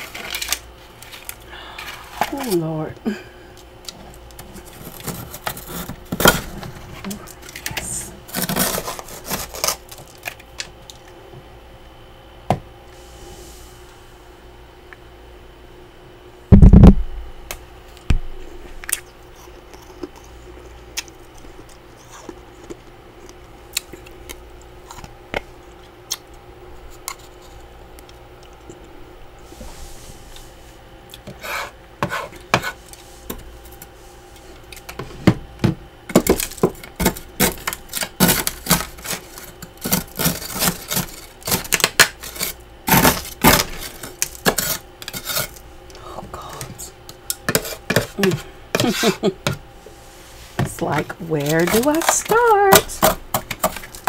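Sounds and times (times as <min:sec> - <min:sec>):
utensil scraping frost: 0:07.8 - 0:09.8, 0:47.5 - 0:54.0.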